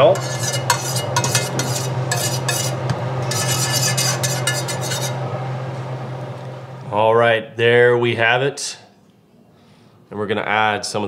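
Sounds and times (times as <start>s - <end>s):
metal whisk scraping pan: 0.0s - 5.2s
steady low hum: 0.0s - 10.3s.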